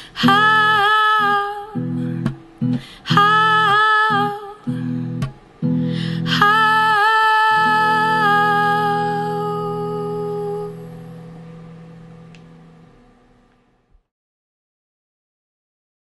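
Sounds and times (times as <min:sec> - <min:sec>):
strummed acoustic guitar chord: 0:00.1 - 0:13.2
woman singing a held note: 0:06.2 - 0:11.1.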